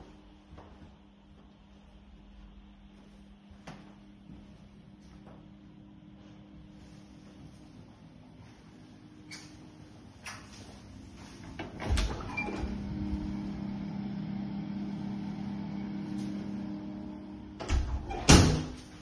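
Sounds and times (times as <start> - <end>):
extractor fan humming: 0.0 - 19.0.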